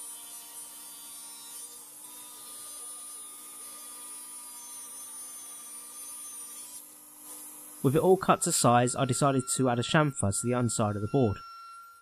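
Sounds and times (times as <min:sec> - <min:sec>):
table saw running: 0:07.4 - 0:12.0.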